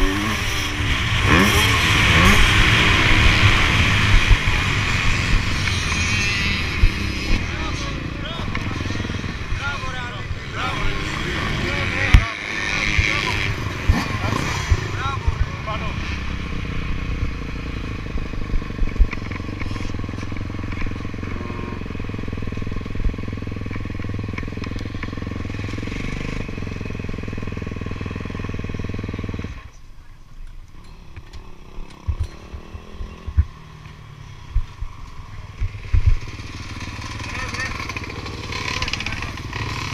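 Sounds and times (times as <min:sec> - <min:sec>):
motorbike engine running: 0:31.1 - 0:39.9.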